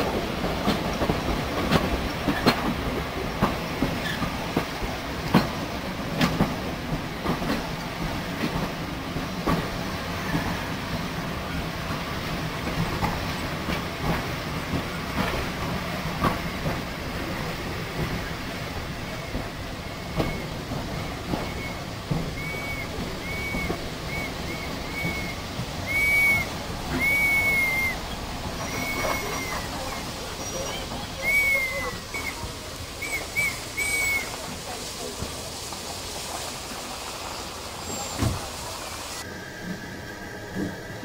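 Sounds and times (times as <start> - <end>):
train wheels rumbling and clicking: 0.0 - 41.0
high-pitched train squeals: 18.2 - 34.8, 37.8 - 41.0.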